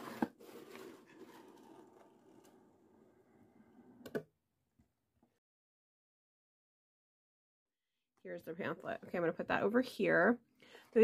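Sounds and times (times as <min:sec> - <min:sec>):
cardboard scraping and rustling: 0:00.0 - 0:02.7.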